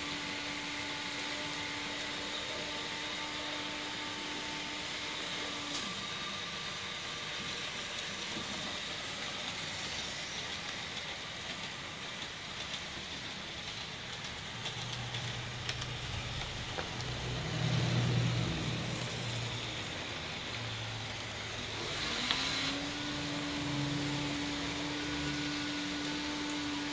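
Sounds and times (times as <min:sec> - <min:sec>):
model train motors whirring: 0:00.0 - 0:26.9
low hum of passing train: 0:08.2 - 0:22.3.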